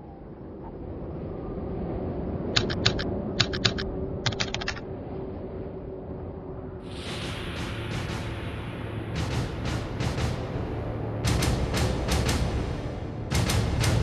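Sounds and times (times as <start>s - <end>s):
low steady drone: 0.0s - 14.0s
keyboard key clicks: 2.6s - 4.8s.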